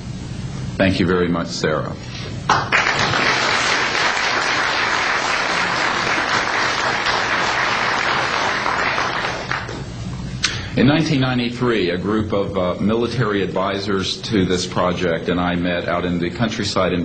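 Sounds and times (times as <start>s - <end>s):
audience applauding: 2.5s - 9.8s.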